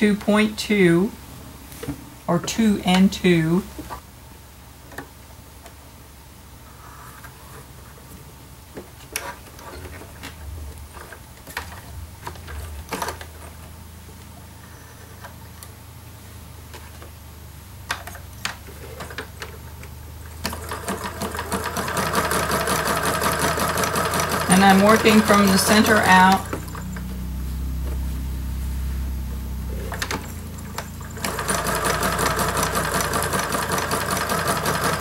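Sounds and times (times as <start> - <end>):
low steady hum: 0.0 - 35.0
sewing machine stitching: 20.4 - 27.0, 29.8 - 35.0.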